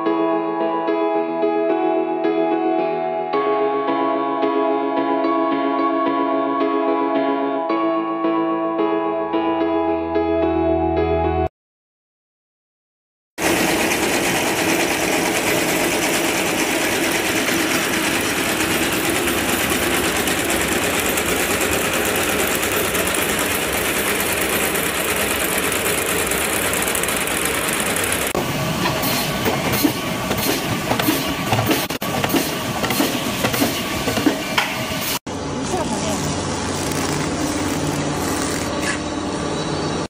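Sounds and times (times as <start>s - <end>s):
machine with spinning discs clattering: 13.4s - 34.4s.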